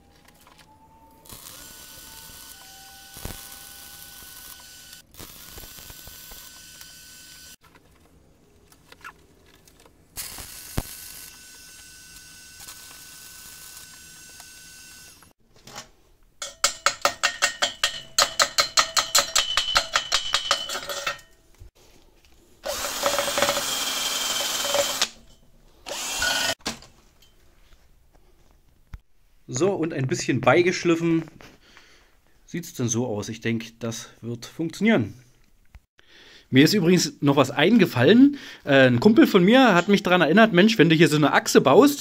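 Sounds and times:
drill spinning wire brush on steel: 0:01.2 - 0:07.6, 0:10.2 - 0:15.4, 0:22.6 - 0:26.6
welding arc hissing and crackling: 0:01.2 - 0:07.6, 0:10.2 - 0:15.3.

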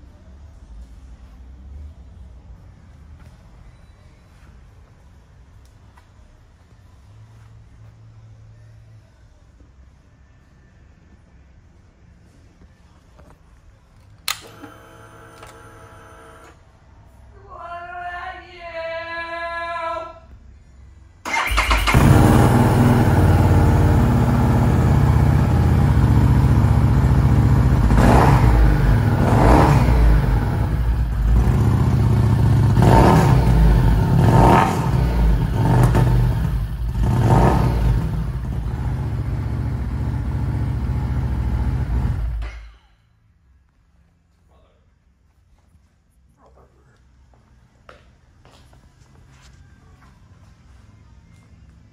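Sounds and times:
short whine at switch-on: 0:14.3 - 0:16.6
motorcycle engine idling and revving: 0:21.3 - 0:42.7.

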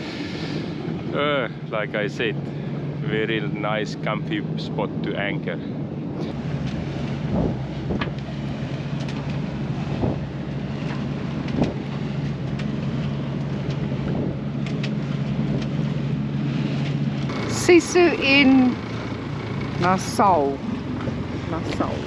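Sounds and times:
rushing water: 0:00.0 - 0:05.4
diesel engine drone: 0:00.0 - 0:22.0
wind: 0:00.0 - 0:22.0
water slapping against hull: 0:06.3 - 0:22.0.

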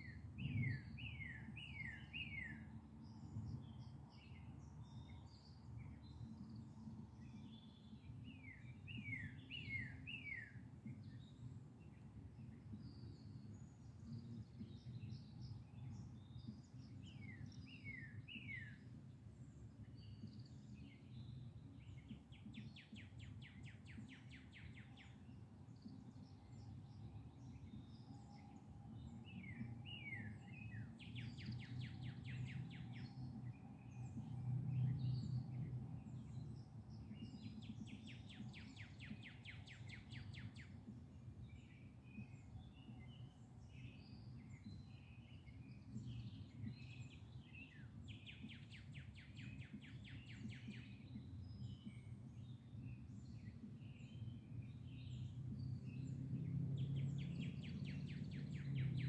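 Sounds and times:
bird chirps: 0:00.0 - 0:19.0, 0:19.8 - 0:59.0
faint low rumble: 0:00.0 - 0:59.0.

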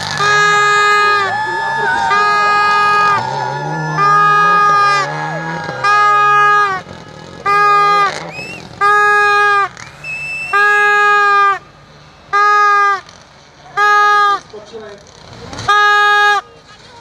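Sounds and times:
horn blasts: 0:00.0 - 0:13.0.

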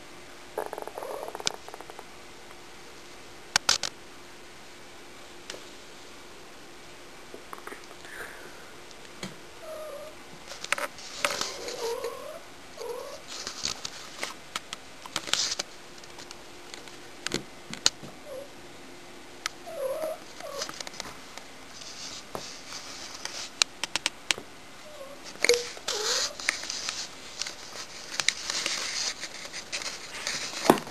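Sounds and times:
scratchy rustling: 0:10.5 - 0:14.4, 0:15.1 - 0:16.3, 0:19.8 - 0:23.6, 0:25.2 - 0:30.9
cat calling: 0:11.4 - 0:13.3.

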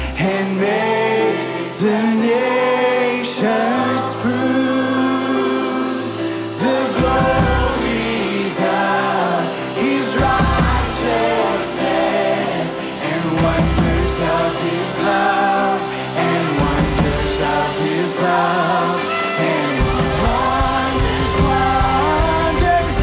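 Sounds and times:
keyboard: 0:00.0 - 0:23.0
people singing worship song: 0:00.0 - 0:23.0
electric guitar: 0:04.0 - 0:23.0.

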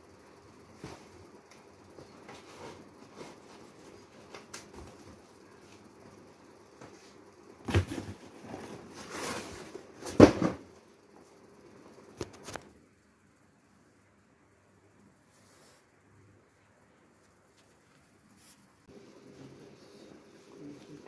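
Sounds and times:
cardboard boxes rustling and scraping: 0:07.7 - 0:10.6
knocks on cardboard boxes: 0:10.0 - 0:10.7.

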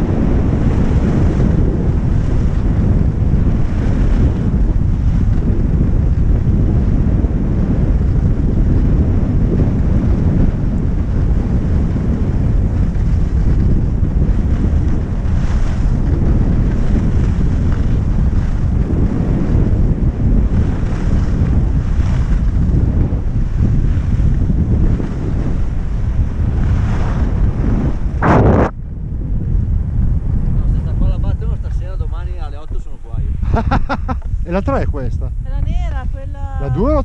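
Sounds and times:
wind rumbling on microphone: 0:00.0 - 0:37.0
skis sliding on snow: 0:12.9 - 0:19.4.

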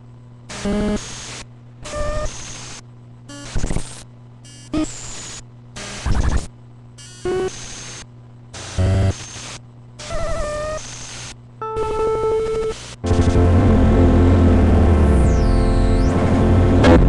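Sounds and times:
low steady hum: 0:00.0 - 0:02.2, 0:02.8 - 0:03.4, 0:11.4 - 0:17.0
looping synthesizer sequence: 0:11.6 - 0:17.0.

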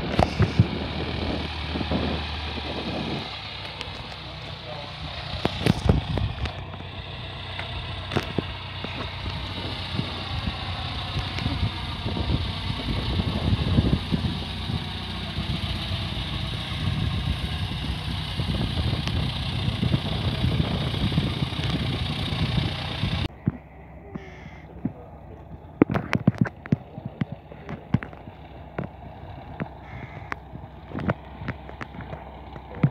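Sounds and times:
wind rumble on microphone: 0:00.0 - 0:04.1, 0:05.4 - 0:06.9, 0:07.8 - 0:23.7
light aircraft propeller engine: 0:00.0 - 0:32.9.

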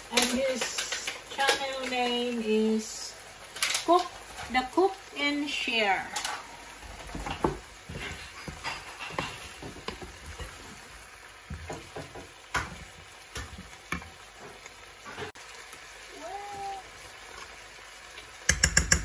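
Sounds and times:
food sizzling in a frying pan: 0:00.0 - 0:19.0
wooden spatula scraping a pan: 0:07.0 - 0:10.9.

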